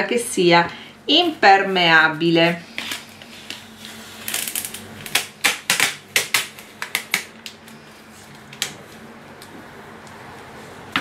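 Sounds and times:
packing tape crackling: 2.8s - 7.8s.

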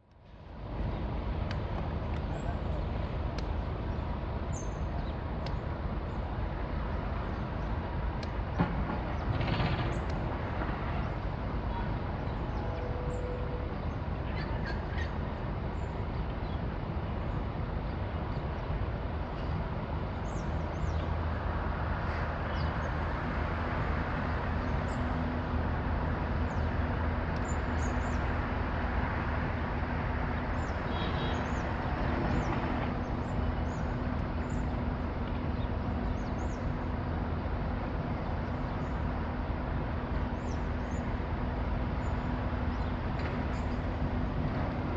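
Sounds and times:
train equipment humming: 9.9s - 44.9s.

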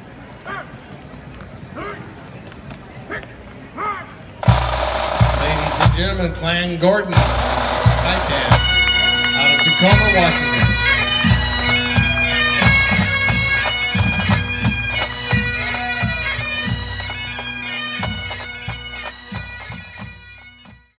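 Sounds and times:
bagpipe music with drone: 4.4s - 6.4s, 7.1s - 21.0s
drum beats: 4.4s - 20.9s.

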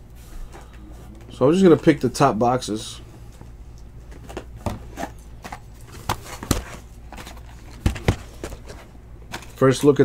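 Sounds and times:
cardboard boxes knocking on table: 7.7s - 8.8s.

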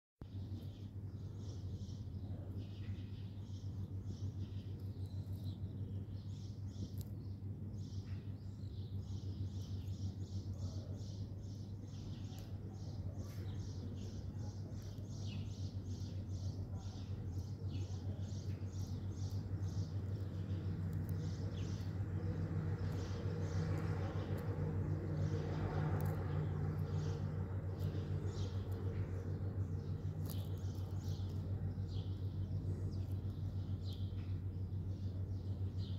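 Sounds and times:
steady low hum: 0.2s - 35.9s
small animal chirping: 9.2s - 35.6s.

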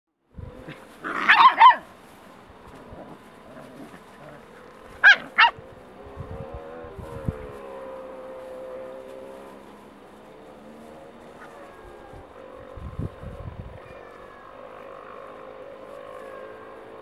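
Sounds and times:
faint engine hum: 0.2s - 17.0s
puppy yips: 1.1s - 1.8s, 5.0s - 5.6s.

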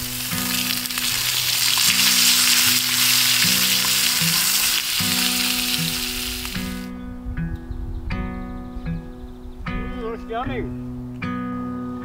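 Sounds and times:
meat sizzling in a frying pan: 0.0s - 6.9s.

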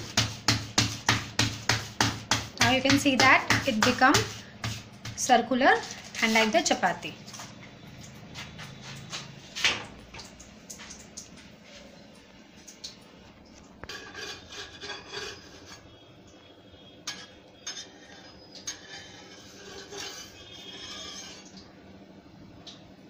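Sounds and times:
scraping on iron griddle: 13.8s - 16.0s, 17.0s - 21.5s.

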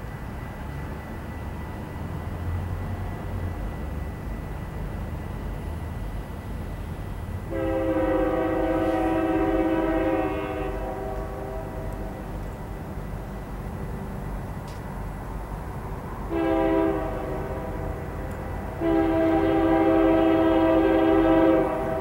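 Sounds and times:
diesel locomotive rumbling: 0.0s - 22.0s
train air horn blast: 7.5s - 12.1s, 16.3s - 22.0s.

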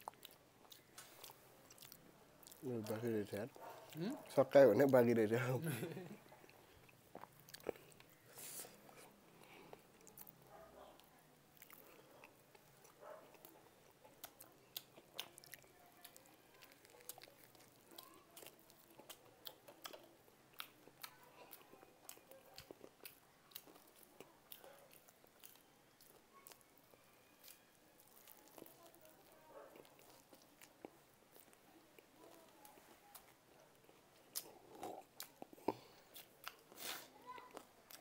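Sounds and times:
chewing and biting food: 0.0s - 5.0s, 6.4s - 8.2s, 8.9s - 38.0s.

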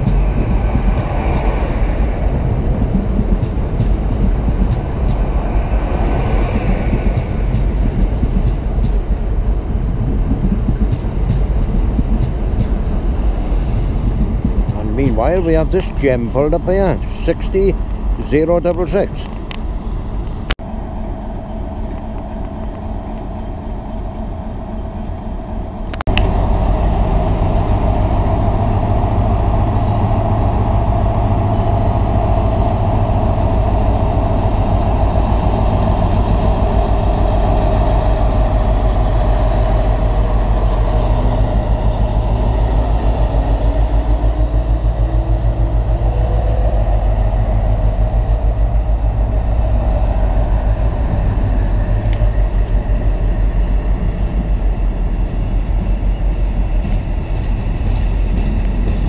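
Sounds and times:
diesel locomotive engine under load: 0.0s - 59.0s.

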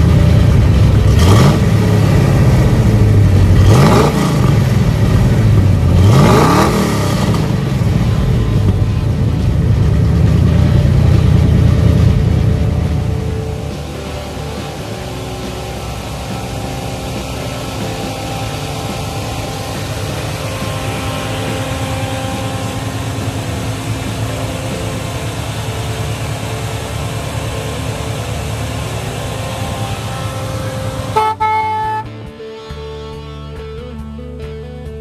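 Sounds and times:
car engine idling: 0.0s - 35.0s
music: 1.7s - 35.0s.

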